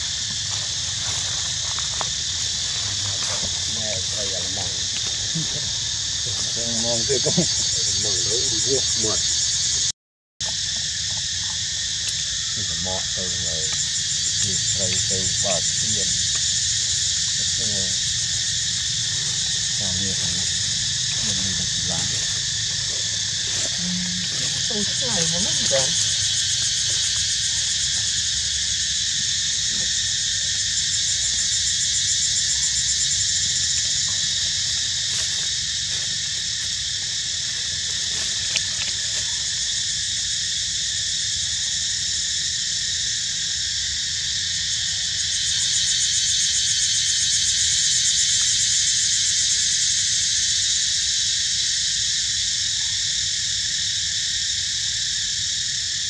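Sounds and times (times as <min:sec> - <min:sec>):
forest insects chorus: 0:00.0 - 0:56.0.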